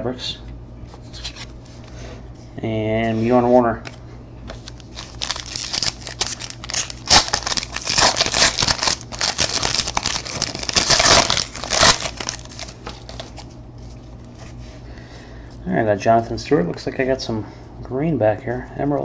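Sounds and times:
wrapper tearing and crinkling: 4.6 - 13.5.

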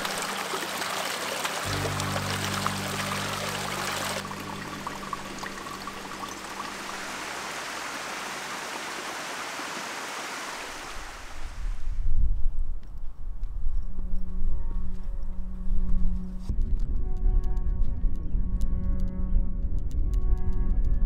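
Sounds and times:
stream water rushing and splashing: 0.0 - 11.8.

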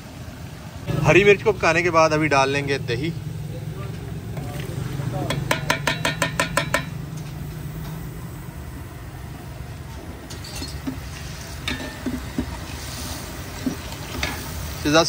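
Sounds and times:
metal ladle clanking on pot: 4.4 - 7.0, 10.3 - 12.6
sizzling in oil: 9.8 - 15.0.

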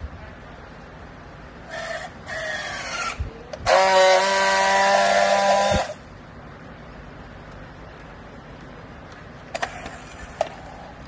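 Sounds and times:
strapping tool motor whine: 2.4 - 6.0.

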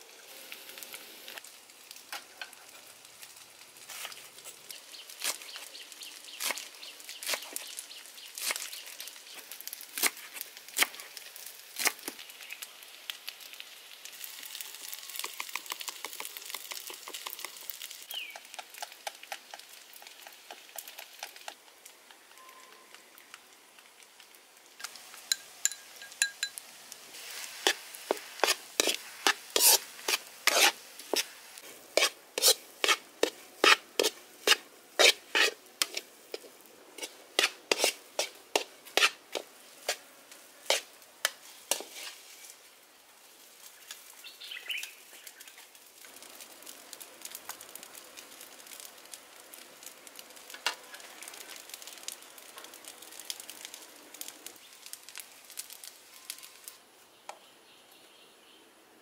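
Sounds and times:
light sizzle: 0.0 - 59.0
metal spatula scraping a wok: 27.2 - 40.0, 40.6 - 42.6.

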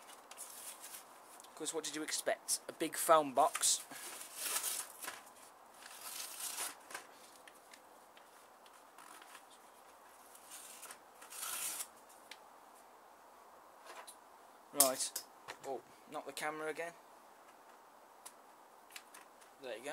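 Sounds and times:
paper crackles: 3.5 - 7.5
card packaging tearing: 4.2 - 6.9, 10.4 - 11.9.

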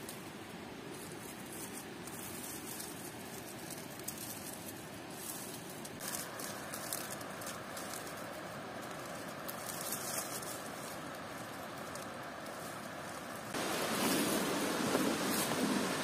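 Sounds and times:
faint ticks and rustles: 0.0 - 13.6
waterfall rushing: 13.6 - 16.0.

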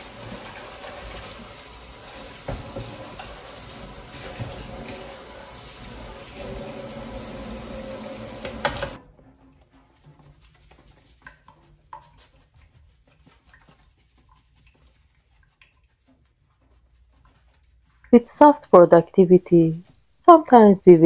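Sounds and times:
dish brush scrubbing: 0.0 - 18.9
tap running into steel sink: 2.4 - 5.2, 8.2 - 9.0.

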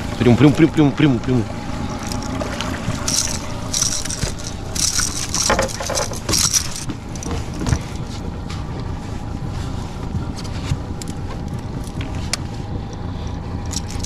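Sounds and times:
outboard motor running: 0.0 - 14.0
water and wind noise: 0.0 - 14.0
light rattling: 1.7 - 9.0, 13.6 - 14.0.

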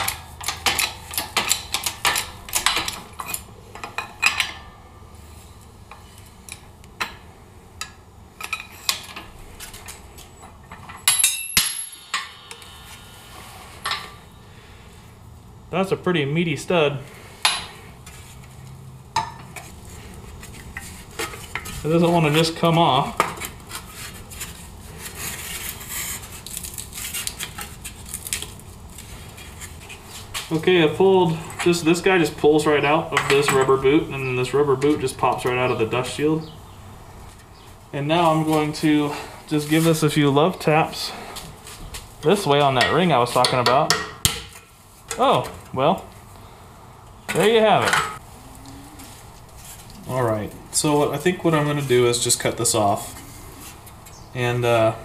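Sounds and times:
ringing metal clatter: 10.7 - 14.4
hammer striking metal: 11.0 - 14.3.

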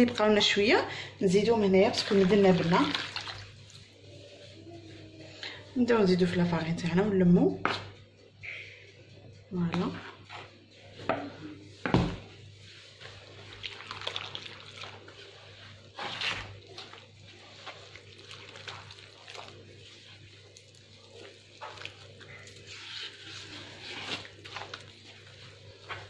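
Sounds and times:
hand squelching dough: 1.4 - 5.0, 9.6 - 26.0.

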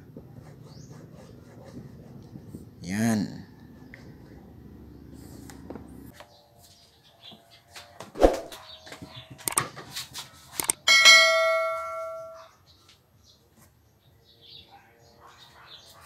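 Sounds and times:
bright bell ding: 10.9 - 12.4.

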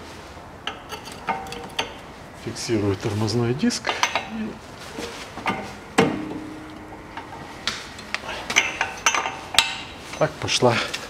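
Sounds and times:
metal clanks and clicks of wrench: 0.7 - 2.0
metallic ring: 0.7 - 2.1, 5.5 - 10.4
sharp metallic knock: 5.6 - 8.8.

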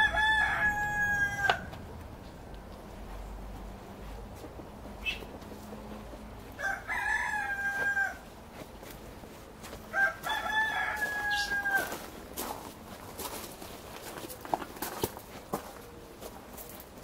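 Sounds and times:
rooster crowing: 0.0 - 1.8, 6.5 - 8.3, 9.9 - 12.1.

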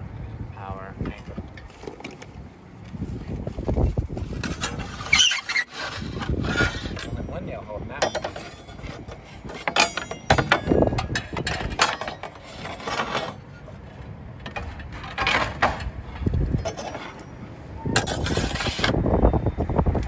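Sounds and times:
wind buffeting microphone: 0.0 - 11.9, 14.1 - 20.0
roofing slates scraping and clicking: 4.2 - 7.2, 8.0 - 17.4, 18.0 - 19.0.

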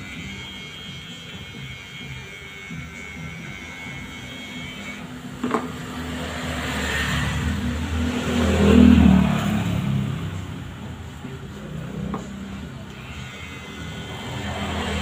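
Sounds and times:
motor vehicle passing by: 5.6 - 12.9, 13.9 - 15.0.

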